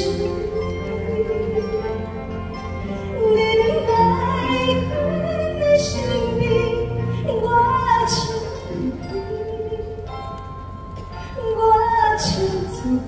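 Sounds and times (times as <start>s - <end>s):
instrumental accompaniment: 0.0s - 13.0s
woman singing operatically: 3.1s - 10.2s, 11.3s - 13.0s.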